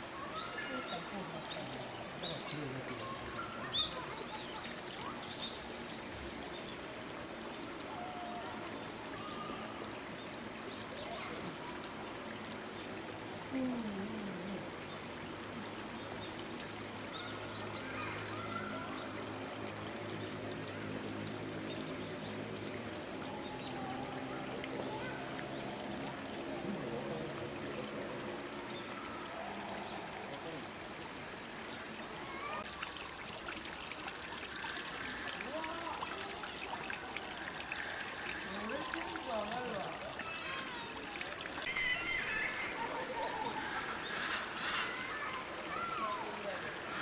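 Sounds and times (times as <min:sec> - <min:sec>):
faint distant voices: 0:00.0 - 0:05.9, 0:17.0 - 0:47.0.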